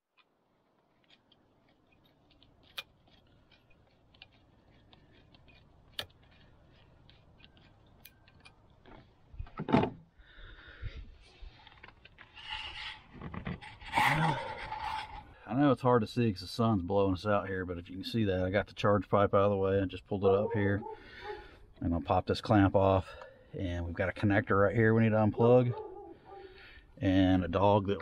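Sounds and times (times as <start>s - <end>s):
rustling and handling noise: 0.0s - 10.0s
sleeve brushing microphone: 12.2s - 15.4s.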